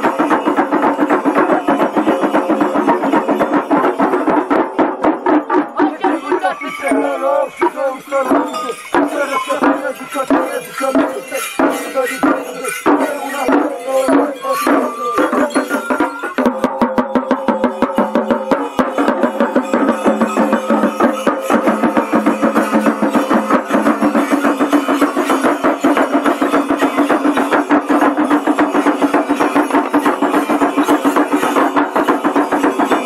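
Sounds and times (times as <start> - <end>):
drums beating folk rhythm: 0.0 - 33.0.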